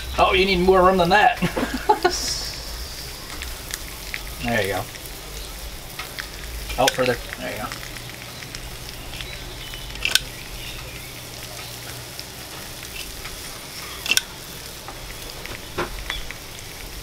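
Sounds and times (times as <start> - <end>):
food sizzling on a griddle: 0.0 - 17.0
sharp clicks: 5.4 - 10.9, 14.0 - 16.4.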